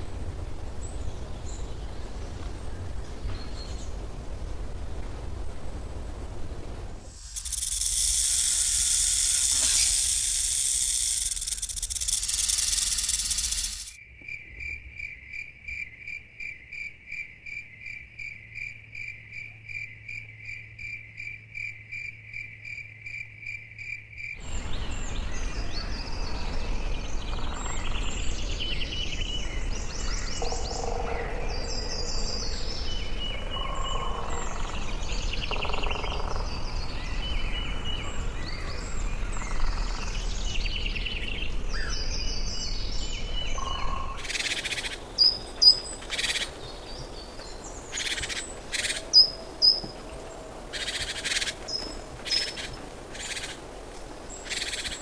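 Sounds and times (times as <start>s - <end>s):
insects buzzing: 0.0s - 14.1s, 23.8s - 55.0s
high pulsing insect chirp: 6.0s - 50.0s, 50.7s - 55.0s
snake hissing: 7.0s - 14.0s
birds chirping and calling: 7.1s - 14.0s, 24.4s - 50.0s, 50.7s - 53.7s, 54.4s - 55.0s.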